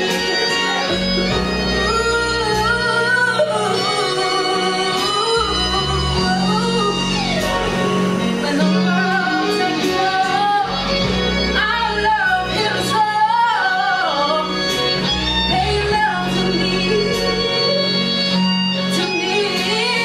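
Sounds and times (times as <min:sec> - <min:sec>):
instrumental accompaniment: 0:00.0 - 0:20.0
woman singing slow melody: 0:00.1 - 0:20.0.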